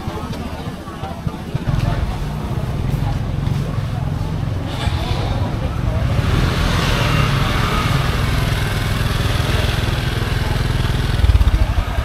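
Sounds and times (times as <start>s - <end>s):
small motorbike engine running: 4.7s - 12.0s.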